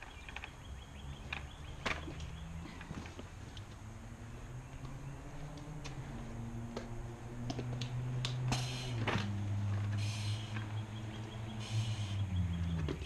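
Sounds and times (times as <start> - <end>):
sharp clicks of gear: 0.0 - 0.6.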